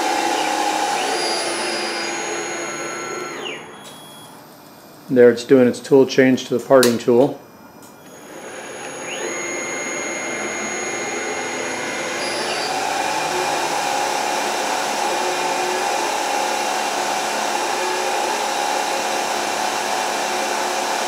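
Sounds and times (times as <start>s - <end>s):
lathe motor whirring hiss: 0.0s - 3.7s, 8.0s - 21.0s
steady tone: 8.1s - 16.3s.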